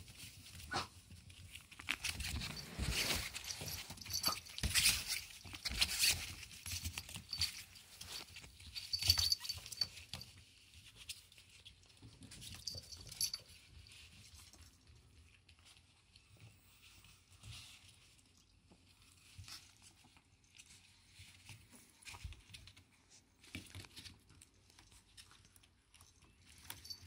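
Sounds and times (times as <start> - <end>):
puppies scrabbling on nylon sheet: 0.0 - 13.0.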